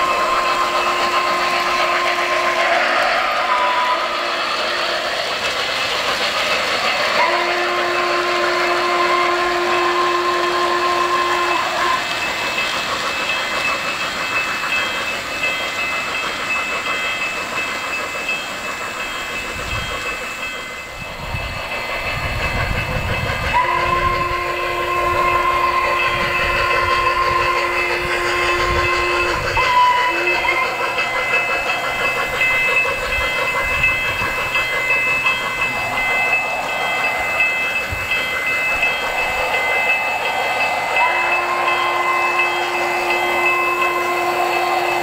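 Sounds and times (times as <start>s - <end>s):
steam whistle blasts: 0.0s - 4.5s, 7.0s - 12.6s, 23.4s - 32.1s, 39.7s - 45.0s
model trains chuffing and clattering: 0.0s - 45.0s.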